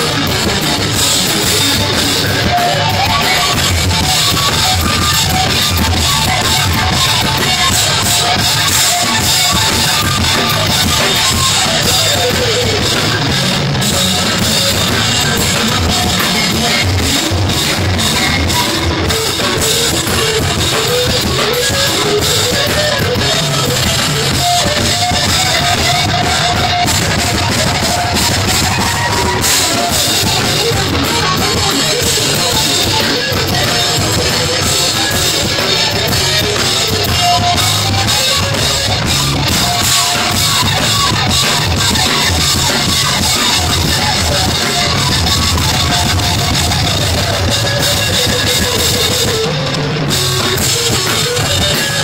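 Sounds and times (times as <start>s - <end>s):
melodic guitar line: 0.0s - 52.0s
rock band playing: 0.0s - 52.0s.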